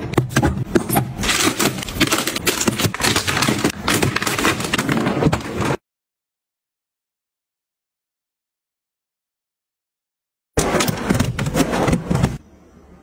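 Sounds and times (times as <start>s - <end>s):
plastic containers clicking and knocking: 0.0s - 5.8s.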